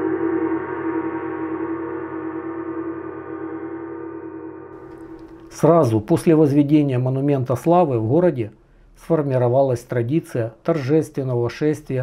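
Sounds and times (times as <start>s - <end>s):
gong ringing: 0.0s - 5.4s.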